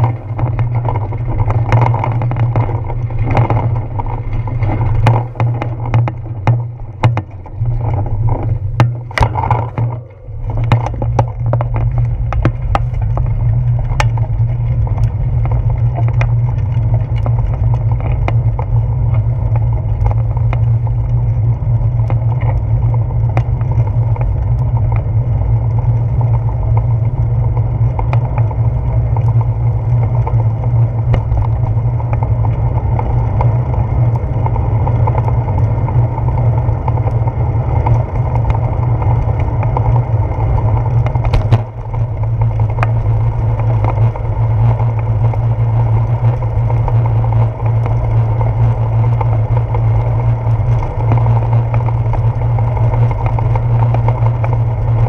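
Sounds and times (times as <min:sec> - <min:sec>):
bike clicks and knocks: 0:00.0 - 0:55.0
wind and road rumble: 0:00.0 - 0:55.0.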